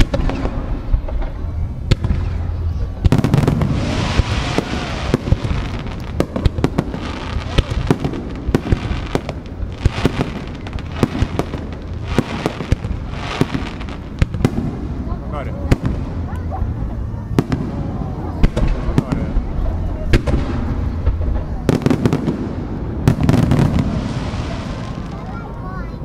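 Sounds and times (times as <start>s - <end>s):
firework shells bursting: 0.0s - 14.9s
hissing crackle of burning stars: 0.0s - 16.5s, 17.4s - 26.0s.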